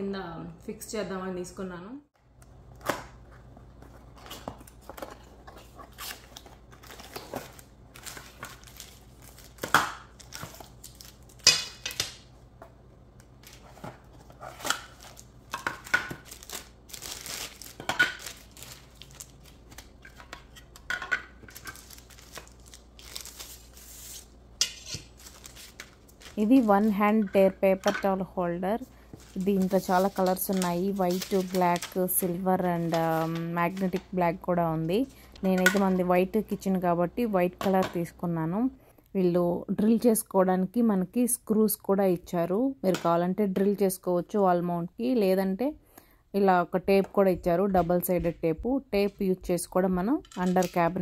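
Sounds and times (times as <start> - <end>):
cardboard and plastic rustling: 13.4 - 24.2, 29.0 - 34.0.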